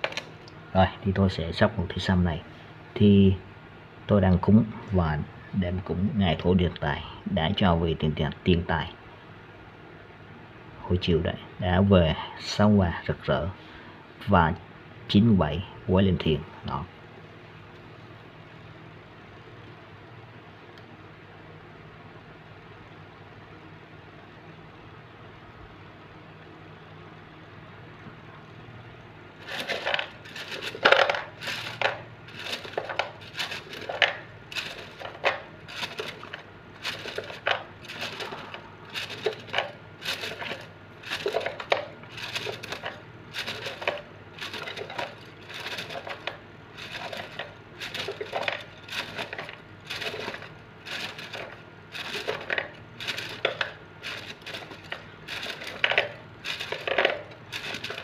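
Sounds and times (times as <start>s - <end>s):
fortune sticks rattling: 29.4s - 58.0s.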